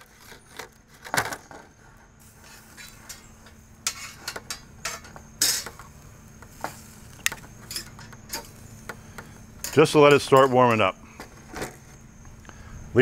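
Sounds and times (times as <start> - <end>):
tongs clinking on grill grate: 2.2 - 11.0.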